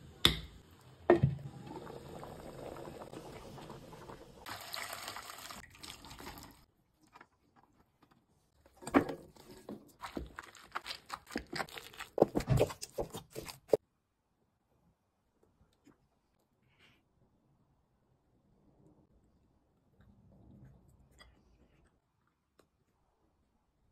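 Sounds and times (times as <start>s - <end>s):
stew bubbling in a pot: 0.1s - 6.7s.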